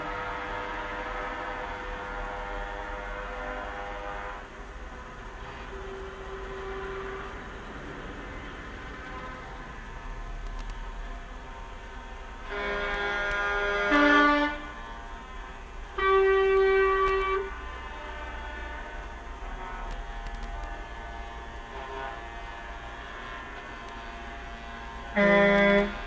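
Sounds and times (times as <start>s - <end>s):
truck air horns: 0.0s - 10.2s, 12.4s - 26.0s
truck engines rumbling: 0.0s - 16.0s.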